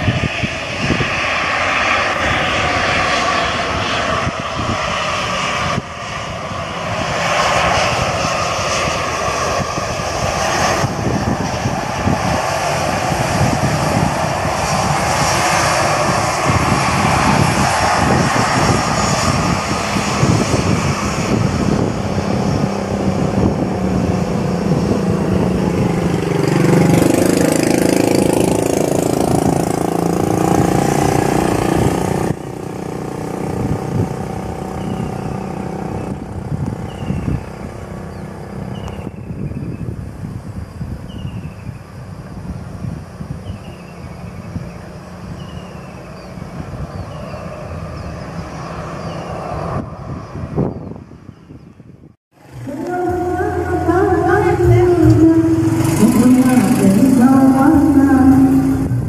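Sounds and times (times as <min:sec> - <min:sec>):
low engine note rising in pitch: 0:00.0 - 0:39.7, 0:52.3 - 0:59.0
jet engines rumbling and hissing: 0:00.0 - 0:59.0.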